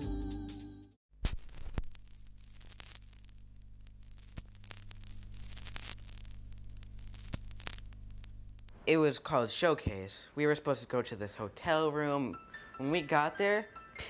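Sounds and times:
background music: 0.0 - 1.0, 12.1 - 14.0
static crackles and clicks: 1.2 - 8.8
low electrical hum: 1.9 - 9.0.

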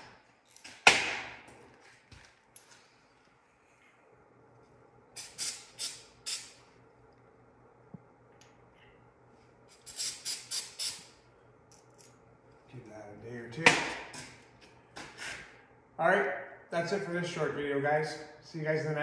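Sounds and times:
aerosol spray hisses: 5.2 - 6.6.

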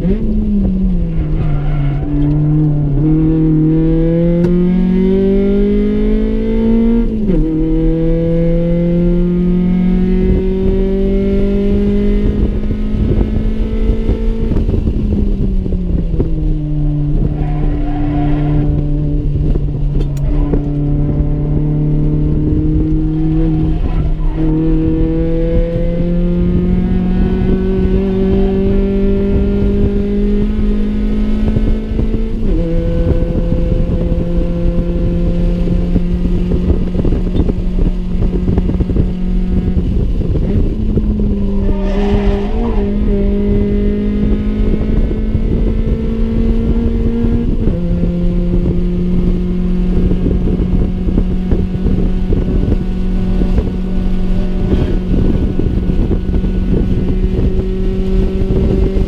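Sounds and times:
car engine revving high: 0.0 - 59.0
road noise rumble: 0.0 - 59.0.

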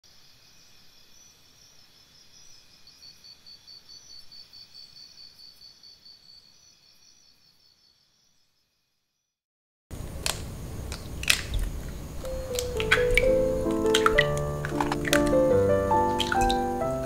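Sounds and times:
insects chirping: 0.0 - 9.3, 9.9 - 17.0
low background hiss: 10.0 - 17.0.

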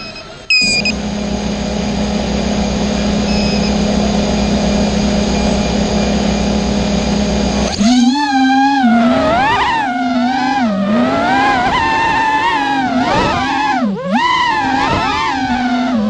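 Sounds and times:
short high beep: 0.0 - 1.0, 3.3 - 3.8
quadcopter motors humming: 0.0 - 16.0.

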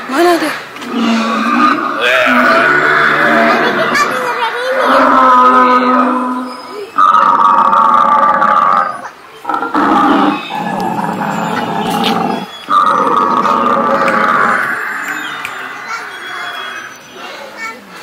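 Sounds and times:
recorded dinosaur roars: 0.8 - 16.8.

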